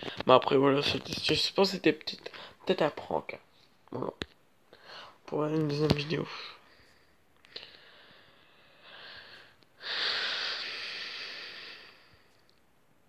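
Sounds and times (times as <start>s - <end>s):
person exhaling: 7.5s - 12.3s.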